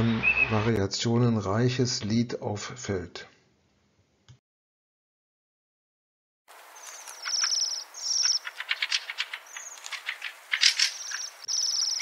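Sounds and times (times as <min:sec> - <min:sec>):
bird song chattering: 0:06.8 - 0:12.0.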